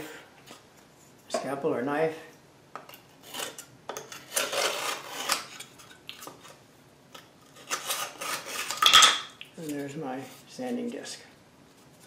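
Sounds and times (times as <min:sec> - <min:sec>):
blade scraping sandpaper: 0:07.6 - 0:08.8.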